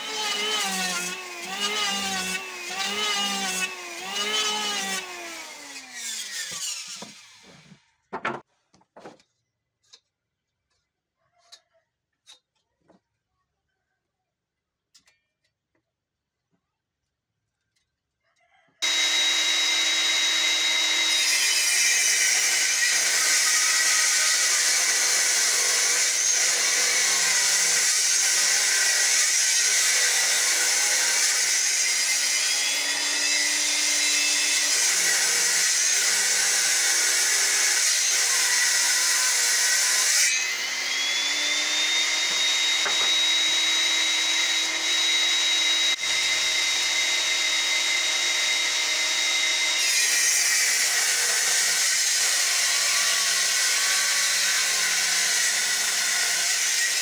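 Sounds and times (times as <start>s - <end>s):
saw motor whining: 0.0s - 7.8s, 18.8s - 56.4s
table saw cutting wood: 0.0s - 7.8s, 18.8s - 57.0s.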